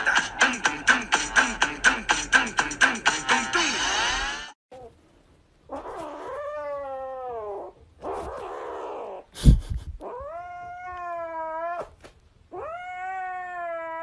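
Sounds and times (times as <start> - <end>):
kitten yowling: 10.0 - 14.0.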